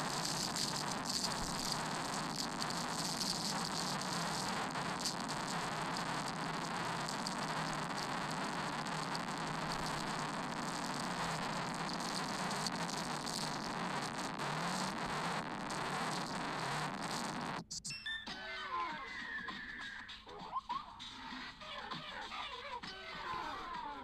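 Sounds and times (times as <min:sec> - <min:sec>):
static hiss: 0:00.0 - 0:17.7.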